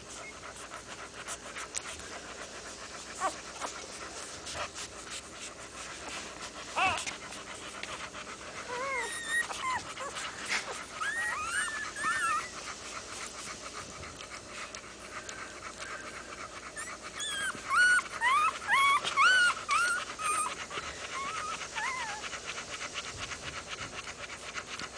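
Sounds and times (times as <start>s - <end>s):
dog panting: 0.0s - 24.9s
puppies squeaking: 6.7s - 7.6s, 8.6s - 14.2s, 15.8s - 22.2s.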